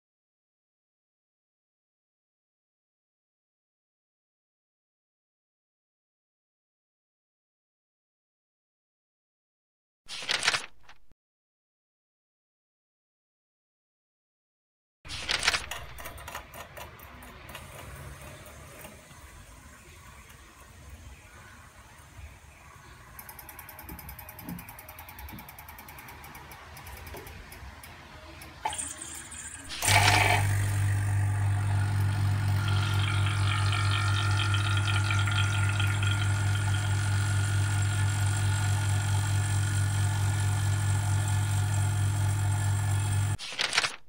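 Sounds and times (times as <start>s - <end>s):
vacuum pump humming and pulsing: 29.7s - 43.4s.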